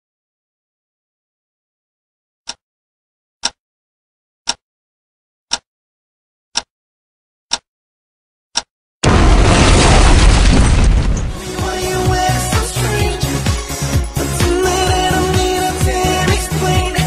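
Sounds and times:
loud music with heavy bass: 11.3 - 17.0.

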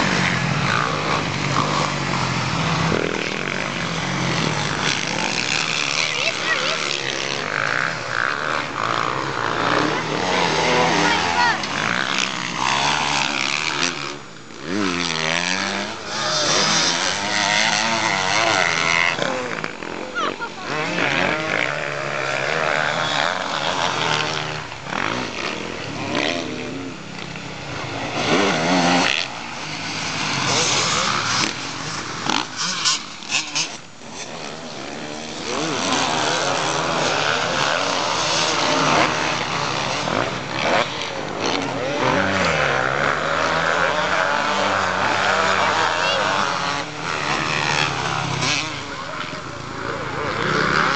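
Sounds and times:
motocross bike engines revving: 0.0 - 50.9.

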